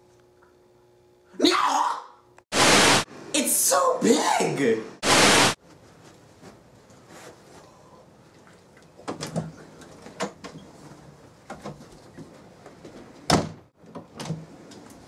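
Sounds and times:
door shutting with a thump: 13.3 - 14.4.

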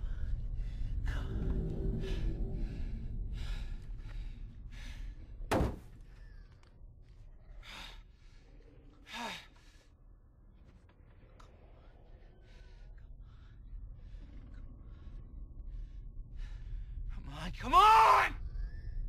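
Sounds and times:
man breathing heavily: 0.0 - 5.5, 7.1 - 10.7
sharp thunk: 5.5 - 5.9.

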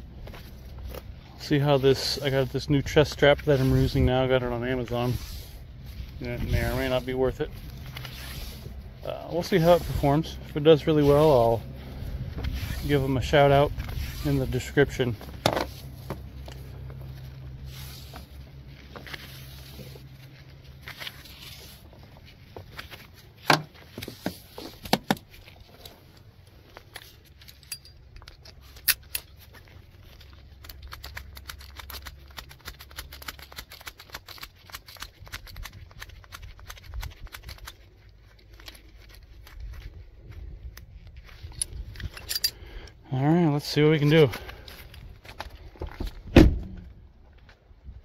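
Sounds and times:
rope rustling: 0.0 - 43.0
low steady hum: 0.0 - 48.0
small metal clicks: 30.5 - 39.7.

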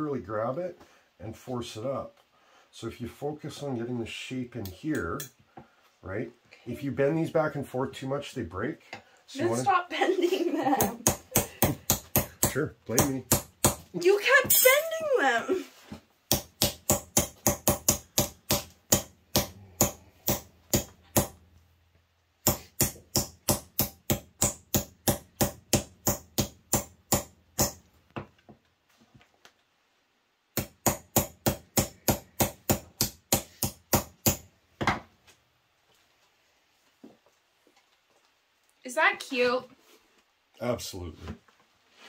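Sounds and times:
hammer tapping on steel: 16.3 - 21.4.

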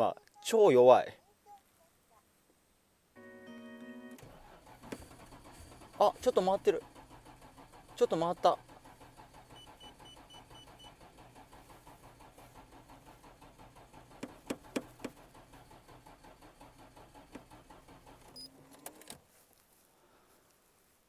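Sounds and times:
engine cranking weakly: 4.2 - 19.2
sharp starter clicks: 4.2 - 19.2.

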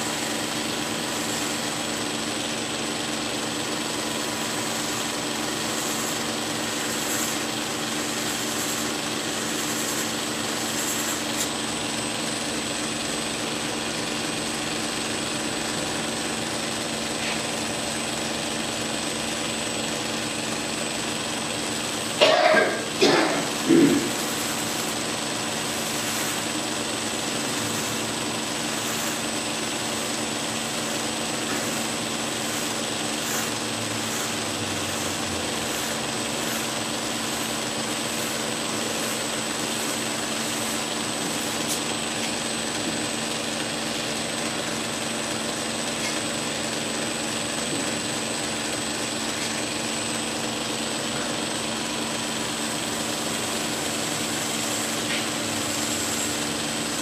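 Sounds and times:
belt grinder grinding steel: 0.0 - 2.2, 3.5 - 11.6, 21.7 - 42.2, 52.7 - 57.0.

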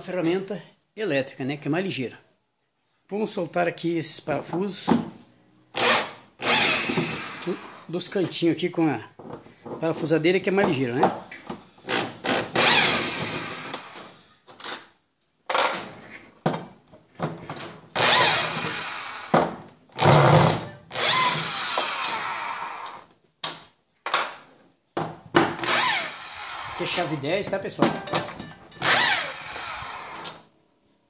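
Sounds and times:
electric screwdriver running: 5.8 - 7.9, 18.0 - 19.3, 20.0 - 23.0, 25.6 - 26.8, 28.8 - 30.2.

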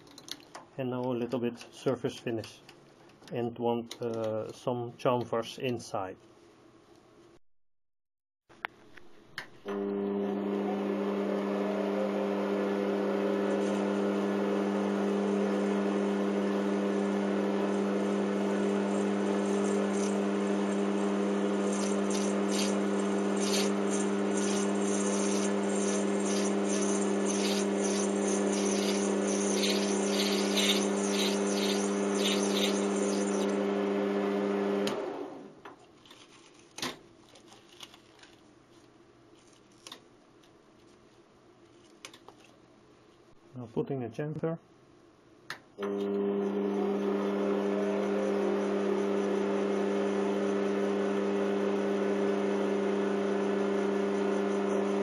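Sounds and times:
lathe humming: 9.7 - 33.8
scratchy cutting hiss: 18.9 - 33.5.

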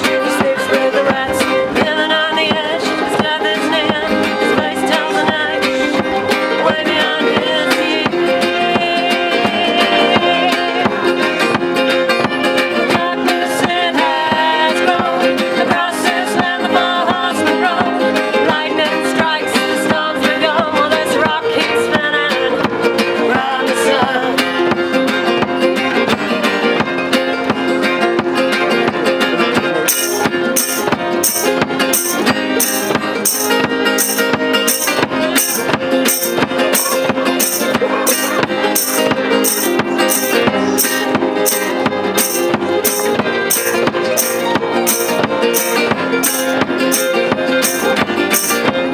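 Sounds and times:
fiddle melody: 0.0 - 48.9
strummed acoustic guitars: 0.0 - 48.9
shaken percussion beat: 29.0 - 48.9.

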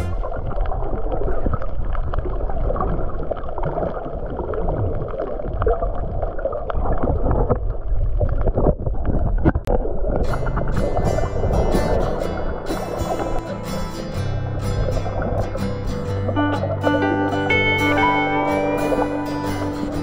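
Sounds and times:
muffled underwater rush: 0.0 - 20.0
small underwater clicks and crackles: 0.3 - 13.3.

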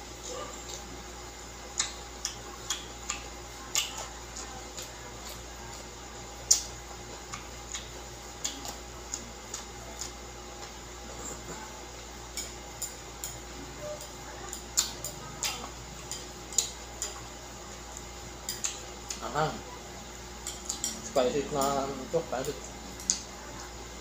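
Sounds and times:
crunchy chewing: 0.2 - 24.0
fork clicking against a plate: 1.7 - 5.8, 6.4 - 10.8, 12.2 - 19.3, 20.4 - 23.3.

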